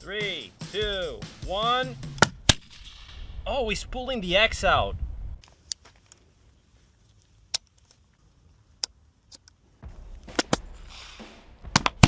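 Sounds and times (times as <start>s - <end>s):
wind rumble on microphone: 3.1s - 5.4s.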